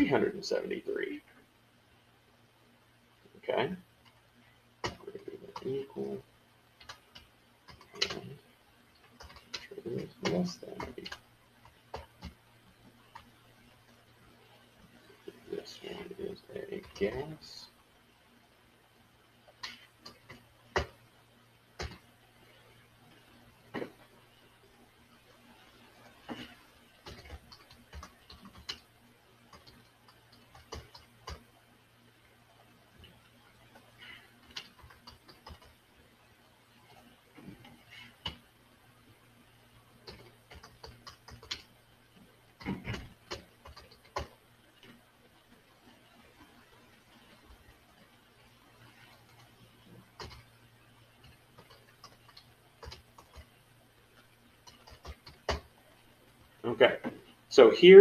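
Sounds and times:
typing on computer keyboard: 6.8 - 8.3, 9.1 - 12.4, 21.8 - 22.0, 26.3 - 28.9, 29.5 - 31.5, 34.0 - 35.8, 40.0 - 41.7, 42.6 - 44.4, 50.2 - 50.5, 51.2 - 53.5, 54.6 - 55.7
keyboard keys clicking: 54.6 - 55.6.

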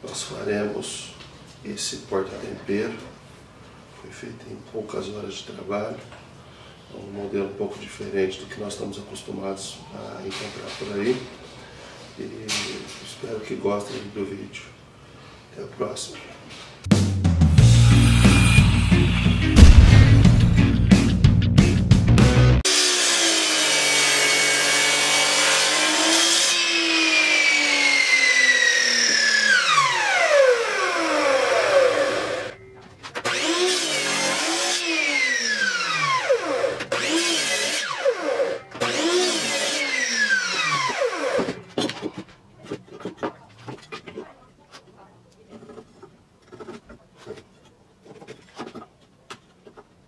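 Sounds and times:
mitre saw motor whining: 22.7 - 32.6, 33.2 - 41.6.

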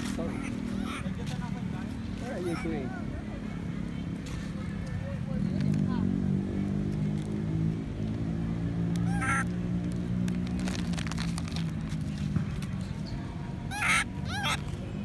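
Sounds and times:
monkey squealing: 0.2 - 1.1, 2.4 - 2.8, 9.0 - 9.5, 13.7 - 14.7.

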